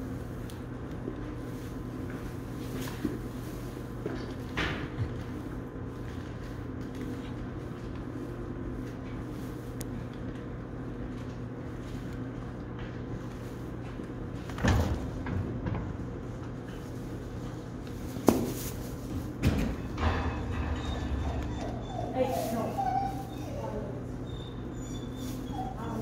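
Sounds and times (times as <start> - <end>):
foal rustling in straw: 18.0 - 19.2, 22.1 - 23.9.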